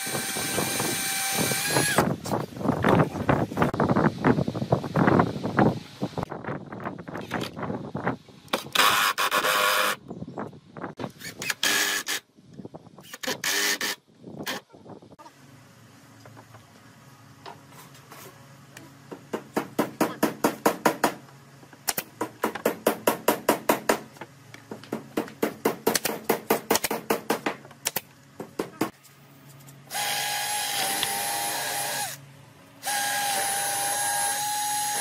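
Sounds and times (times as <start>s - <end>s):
cordless drill drilling into wood: 0.0s - 2.1s, 29.9s - 32.2s, 32.8s - 35.0s
nail gun shots: 25.4s - 28.0s.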